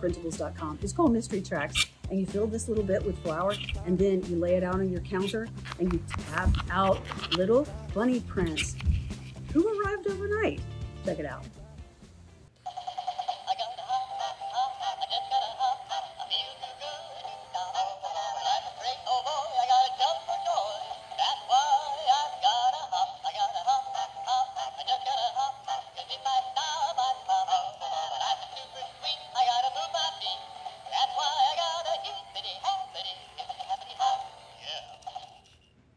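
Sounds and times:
tinny electronic toy song: 12.6 - 35.7.

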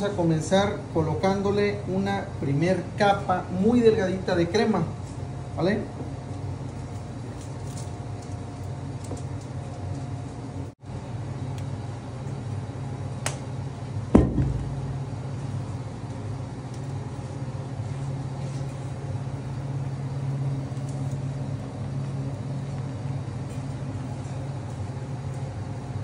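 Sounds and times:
low machine hum: 0.0 - 26.0
sharp knock: 14.2 - 14.9.

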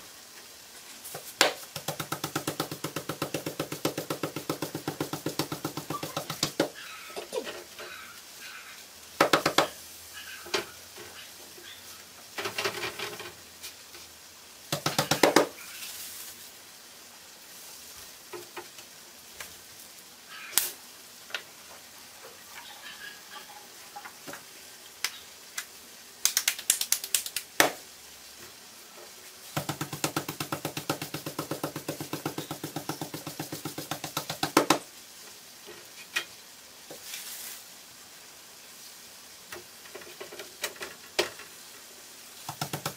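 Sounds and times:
hands patting dough: 1.1 - 6.7, 26.2 - 27.8, 29.6 - 34.8, 42.4 - 42.9.

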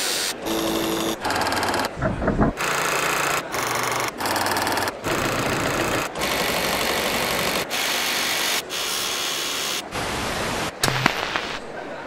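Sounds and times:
small machine rattling: 0.4 - 8.6.

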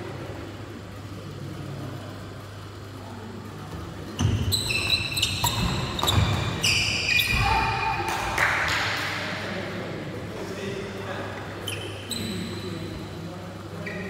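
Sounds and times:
shoes squeaking on a floor: 4.1 - 7.8, 11.6 - 12.9, 13.8 - 14.0.

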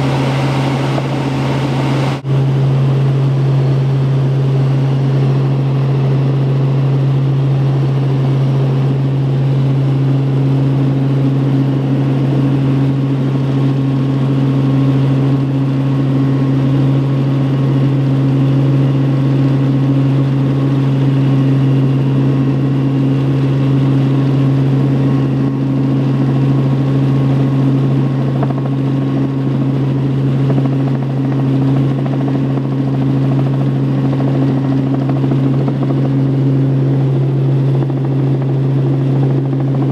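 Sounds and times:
higher hum: 0.0 - 2.3
wind noise: 0.0 - 2.5
helicopter engine and rotor hum: 0.0 - 39.9.

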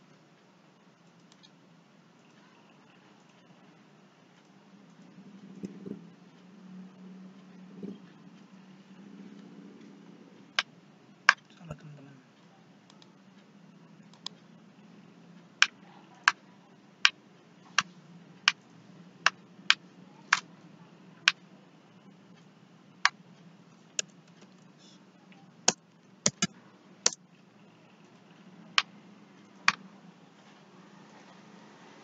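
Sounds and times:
mouse and keyboard clicks: 25.7 - 26.5.

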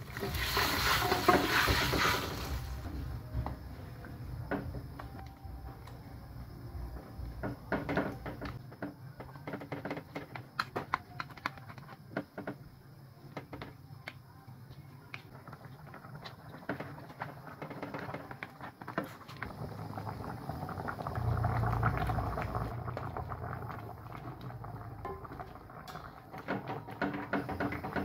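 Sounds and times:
low rumble: 19.9 - 25.1.

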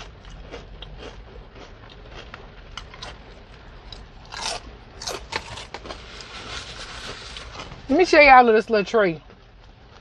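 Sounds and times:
chewing fried food: 0.0 - 7.9, 9.2 - 10.0
low steady hum: 0.0 - 10.0
wrappers crackling: 5.2 - 7.9.

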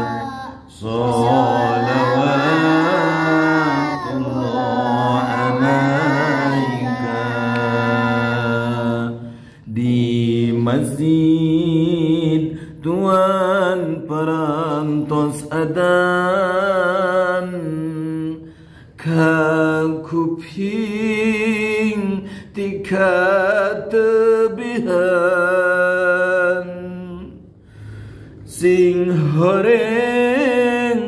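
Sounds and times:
man chanting unaccompanied: 0.0 - 18.4, 28.5 - 31.0.

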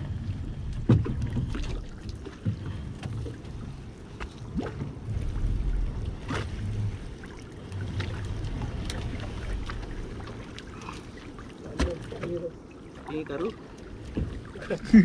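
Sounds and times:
low steady rumble: 0.0 - 15.0
water dripping and splashing: 7.2 - 15.0.

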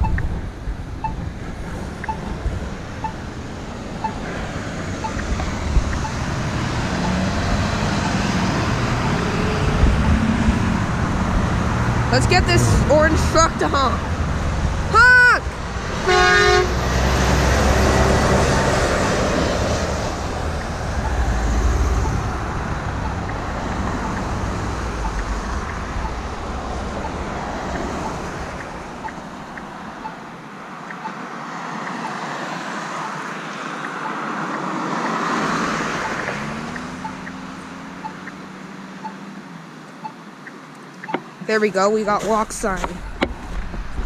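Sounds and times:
truck engine rumbling: 0.0 - 30.8, 40.0 - 44.0
passing traffic: 0.0 - 44.0
vehicle engine speeding up: 1.7 - 30.1
truck horn blast: 16.0 - 18.1.

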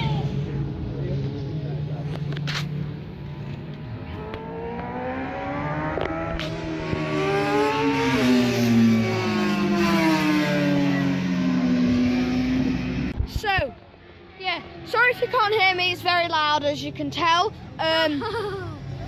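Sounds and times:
racing motorcycle passing: 0.0 - 13.2, 14.0 - 17.1
lower engine note: 0.1 - 13.2.

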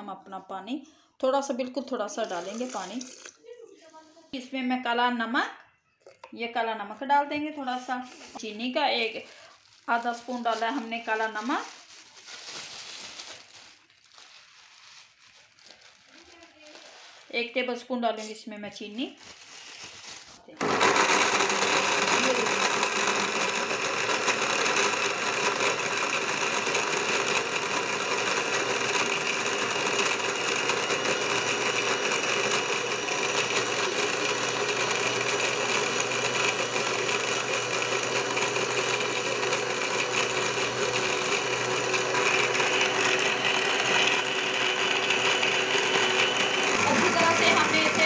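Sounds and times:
blender motor running: 2.2 - 3.4, 20.6 - 48.0.

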